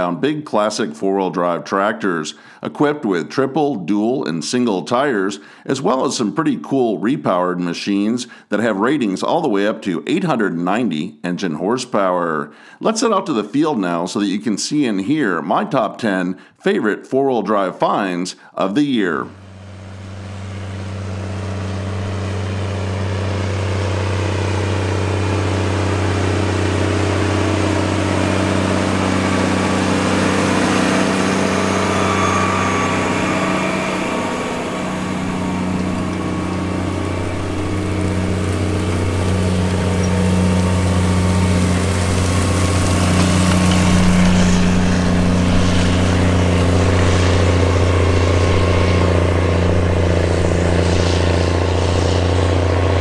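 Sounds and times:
tractor diesel engine droning: 18.9 - 53.0.

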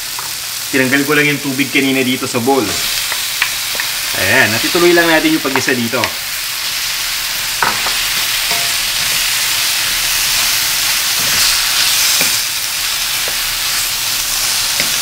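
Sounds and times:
vegetables sizzling in hot oil: 0.0 - 15.0
wooden spatula knocking on pan: 5.5 - 6.2, 7.6 - 8.8.

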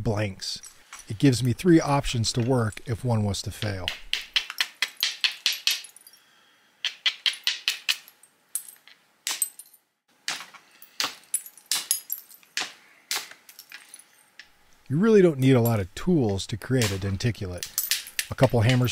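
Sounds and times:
stone-on-stone clicks: 3.6 - 5.8.

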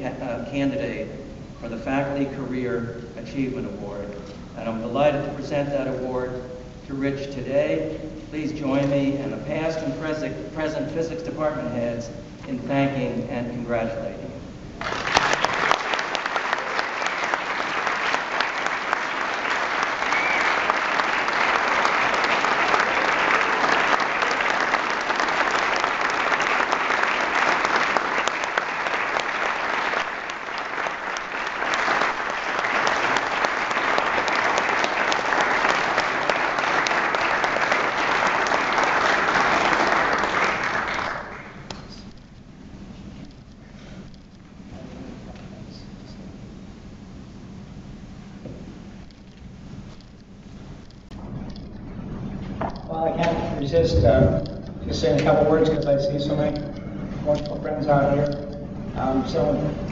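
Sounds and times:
audience applauding: 14.8 - 41.7
hands clapping close by: 14.8 - 41.9.

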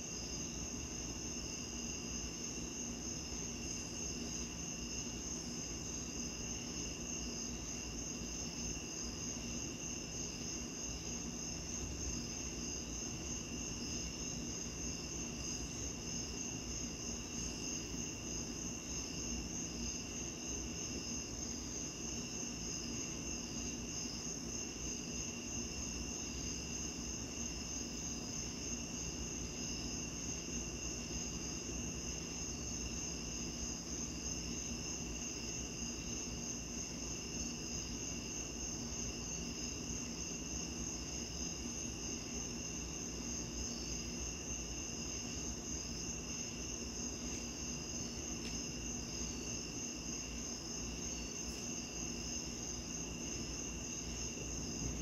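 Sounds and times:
crickets chirping: 0.0 - 55.0.

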